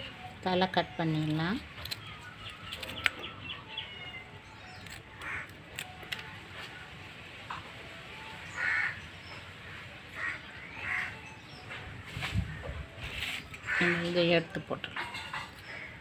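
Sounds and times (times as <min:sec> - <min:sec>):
scissors snipping: 0:01.2 - 0:03.2, 0:04.7 - 0:06.3.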